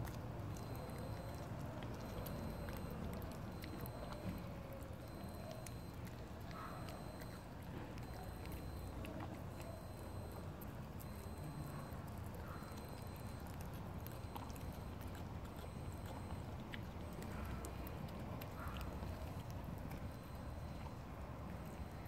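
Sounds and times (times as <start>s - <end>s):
kitten chewing wet food: 0.0s - 22.0s.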